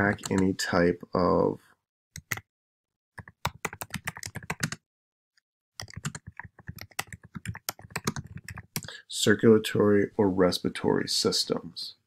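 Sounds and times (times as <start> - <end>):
computer keyboard typing: 0.0 - 0.5, 2.2 - 2.5, 3.2 - 4.8, 5.8 - 8.9.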